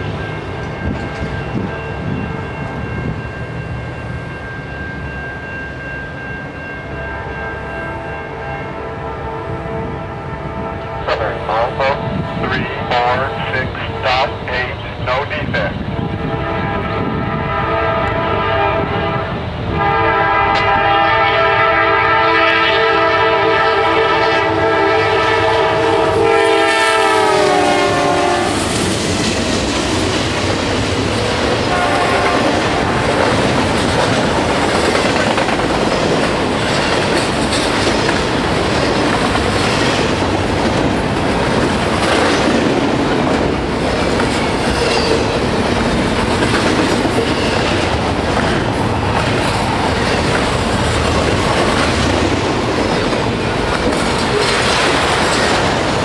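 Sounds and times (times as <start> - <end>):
locomotive air horn chord: 7.1 - 12.2, 16.2 - 28.7, 31.7 - 33.0
wheels clacking over rail joints: 32.6 - 56.0.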